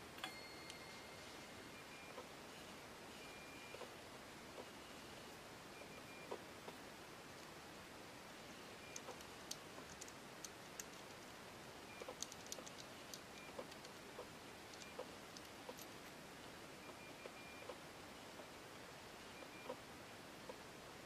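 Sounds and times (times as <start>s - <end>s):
low steady hiss: 0.0s - 21.0s
small metal parts clicking: 8.9s - 11.3s, 12.0s - 14.0s, 14.6s - 16.0s.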